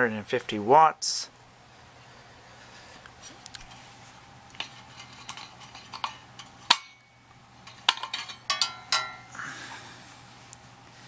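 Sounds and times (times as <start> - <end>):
metal and glass clinking: 4.6 - 9.3.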